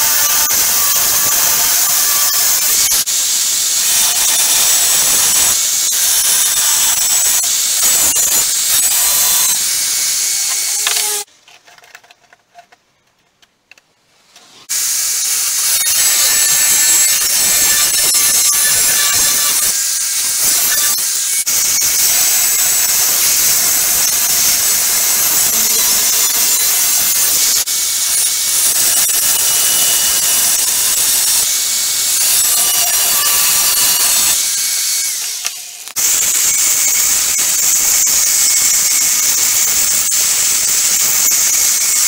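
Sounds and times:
power tool grinding steel: 0.0s - 11.3s, 14.6s - 42.0s.

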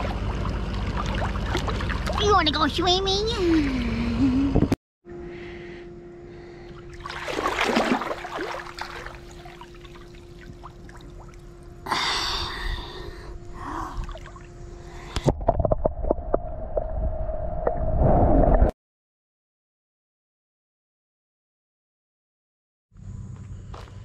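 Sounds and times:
pool water splashing: 0.0s - 2.3s, 6.8s - 11.8s
steady hum: 0.0s - 17.6s
underwater bubbling: 6.9s - 11.9s.

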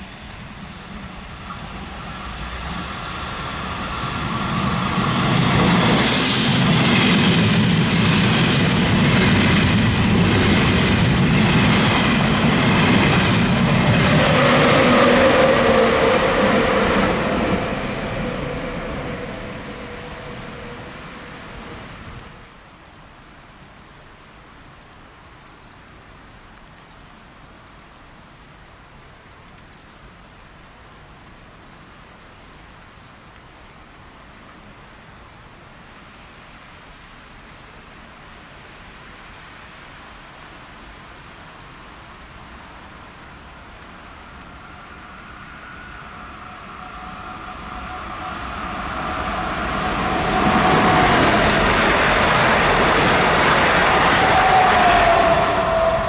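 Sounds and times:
electric train approaching: 0.0s - 22.4s, 43.7s - 56.0s
background hiss: 0.0s - 56.0s.

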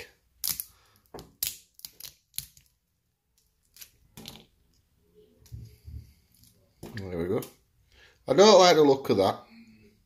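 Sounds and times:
crayfish shell cracking: 0.4s - 4.3s.

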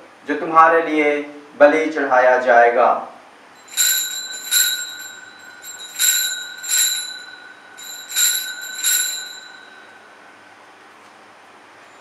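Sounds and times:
bell ringing: 3.6s - 10.4s.

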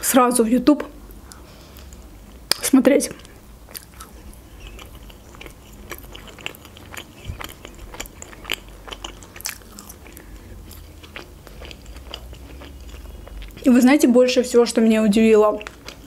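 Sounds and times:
wet mouth clicks and smacks: 1.3s - 10.3s
chewing marshmallows: 1.3s - 13.8s, 15.4s - 16.0s.

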